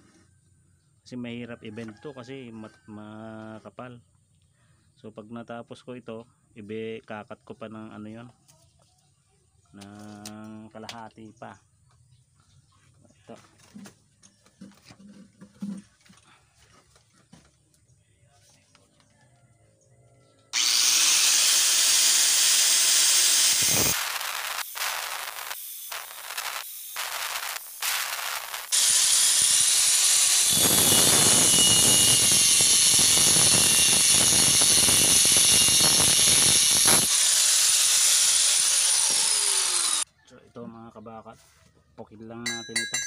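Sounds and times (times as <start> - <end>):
angle grinder cutting steel pipe: 20.6 - 40.1.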